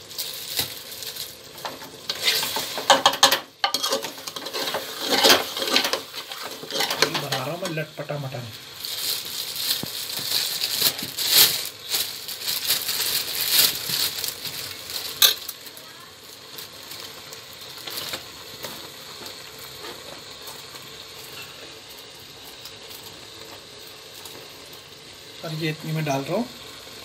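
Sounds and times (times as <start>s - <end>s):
meat sizzling in a pot: 0.0s - 27.0s
metal ladle scraping and stirring: 1.6s - 7.5s.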